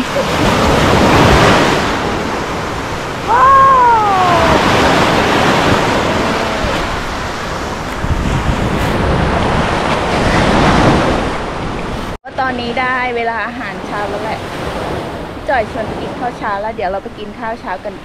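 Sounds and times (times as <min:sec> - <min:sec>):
surf washing onto beach: 0:00.0 - 0:12.2
wind on microphone: 0:00.0 - 0:12.7.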